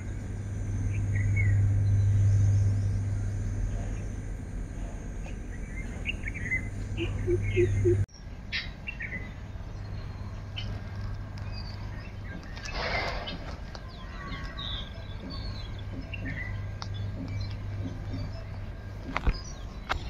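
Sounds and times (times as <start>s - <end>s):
short low notes: 0.0s - 8.1s
birds chirping and calling: 0.0s - 20.0s
steady low hum: 0.0s - 20.0s.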